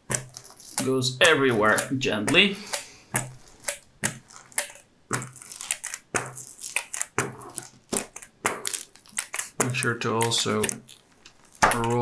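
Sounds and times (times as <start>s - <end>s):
paper crinkling and rustling: 0.2s - 1.0s, 5.2s - 12.0s.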